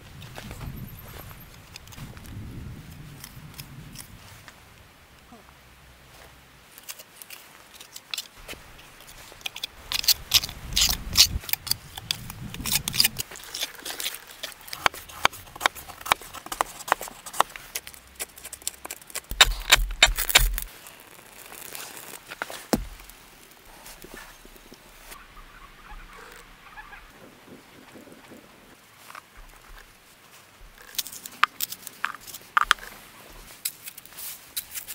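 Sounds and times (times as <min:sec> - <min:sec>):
knife shaving wood: 0:06.7 - 0:25.1, 0:30.6 - 0:34.9
bricks set in mortar: 0:09.0 - 0:20.7, 0:22.3 - 0:23.2.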